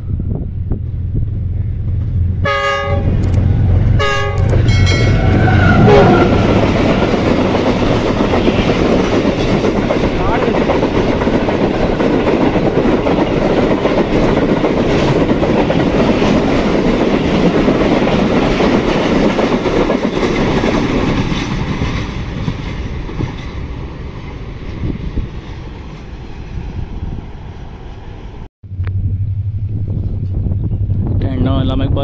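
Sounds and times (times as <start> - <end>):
train coaches passing at speed: 0.0 - 28.5
wheels running over rails: 4.5 - 23.8.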